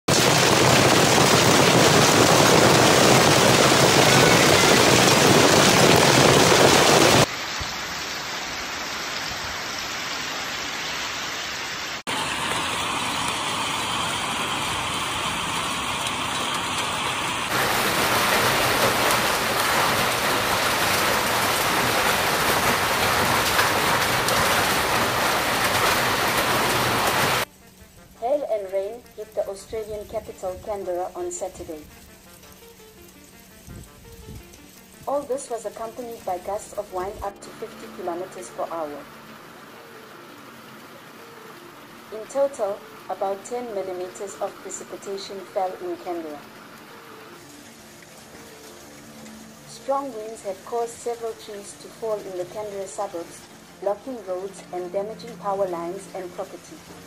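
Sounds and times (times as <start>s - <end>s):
hail and heavy rain falling: 0.1s - 11.2s, 11.9s - 27.5s, 39.4s - 54.1s.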